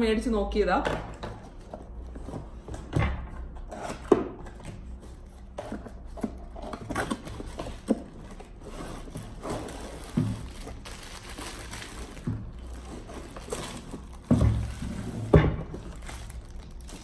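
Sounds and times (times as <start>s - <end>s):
cardboard rustling and scraping: 3.6s - 17.0s.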